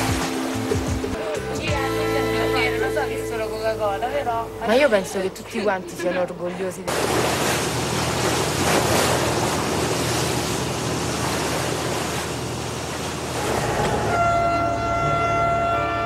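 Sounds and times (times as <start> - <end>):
water splashing along boat hull: 0.0 - 4.2, 6.9 - 16.0
music with held chords: 0.0 - 5.6, 13.7 - 16.0
low engine hum: 6.9 - 16.0.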